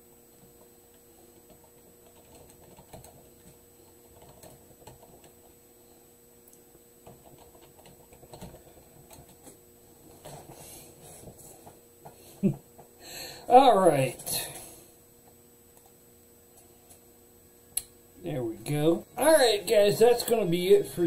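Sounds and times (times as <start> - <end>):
computer keyboard typing: 1.4 - 5.4, 7.0 - 9.5.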